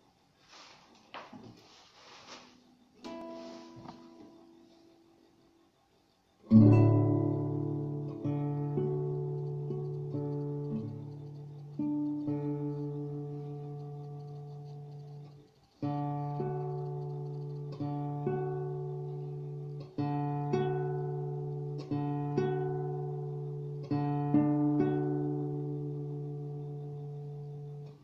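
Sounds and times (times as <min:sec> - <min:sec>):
acoustic guitar played slowly: 0:01.7 - 0:05.1, 0:06.4 - 0:28.0.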